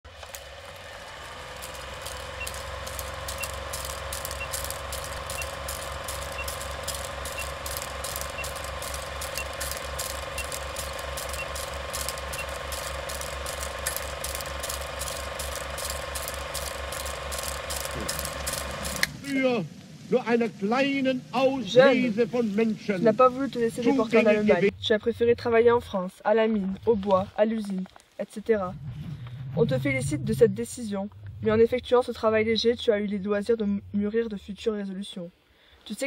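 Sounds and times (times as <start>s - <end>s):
film projector clatter: 0.1s - 19.2s
pulsing hum: 0.2s - 26.0s, 28.5s - 34.7s
short faint beeps: 2.4s - 2.7s, 3.3s - 3.6s, 5.2s - 6.7s, 7.3s - 8.6s, 9.2s - 9.7s, 11.3s - 11.7s.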